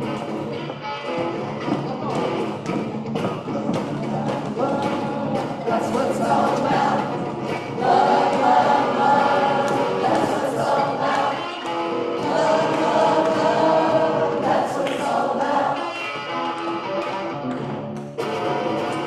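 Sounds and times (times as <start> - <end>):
strummed electric guitar: 0.0 - 19.0
group of people singing: 3.7 - 16.5.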